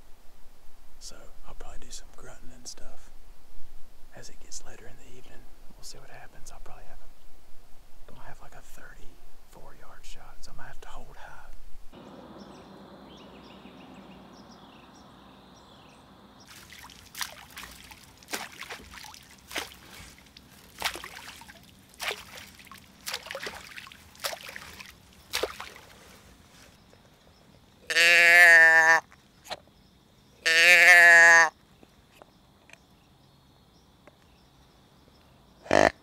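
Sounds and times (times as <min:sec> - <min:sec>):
splashing steps in water: 0:16.4 - 0:26.2.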